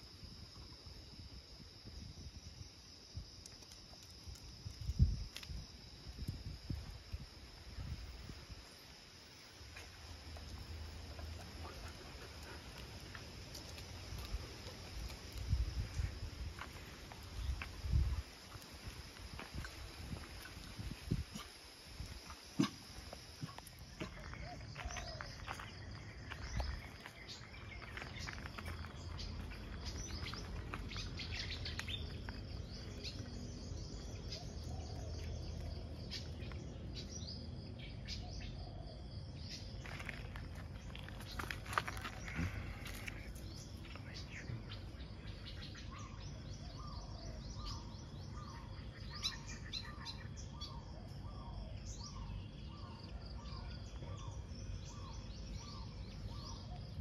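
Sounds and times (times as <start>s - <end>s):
outdoor background hum: 0.0s - 57.0s
birds chirping and calling: 41.4s - 57.0s.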